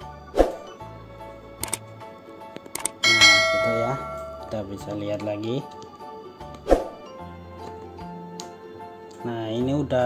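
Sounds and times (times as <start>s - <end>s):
quick clicks: 1.6s - 1.8s, 2.6s - 3.0s
music of held tones: 3.0s - 5.0s.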